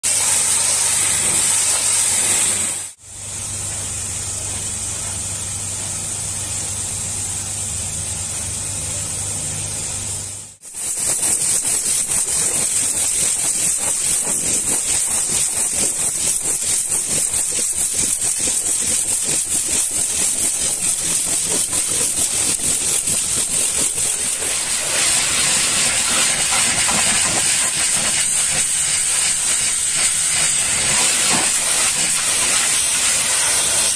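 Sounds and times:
pressure washer spray hissing: 0.0 - 3.5, 10.6 - 33.9.

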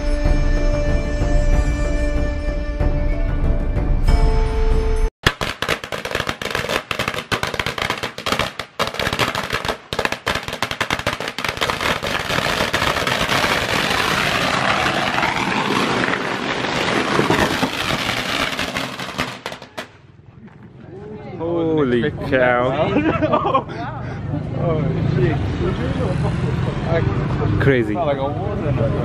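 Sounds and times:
firecrackers crackling: 5.2 - 20.2.

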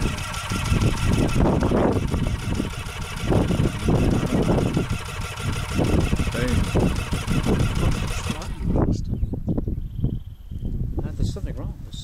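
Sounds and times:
two-stroke engine running rough: 0.0 - 9.0.

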